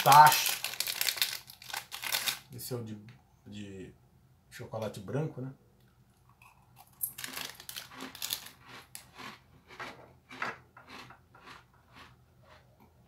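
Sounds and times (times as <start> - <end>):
crunchy cookie chewing: 6.2 - 12.9.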